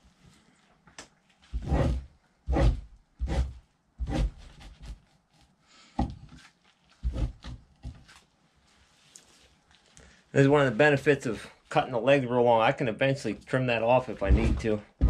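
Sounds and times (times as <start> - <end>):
knife scraping hide: 1.5 - 5.5, 14.1 - 14.8.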